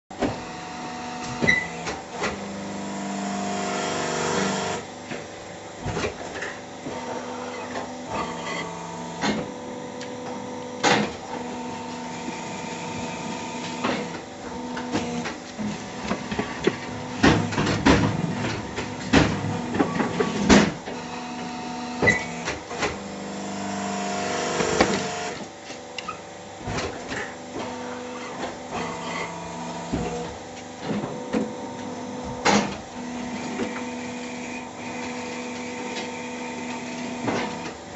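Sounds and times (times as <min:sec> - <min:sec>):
machine droning: 0:00.1 - 0:25.5
motor and pump hum: 0:00.1 - 0:37.9.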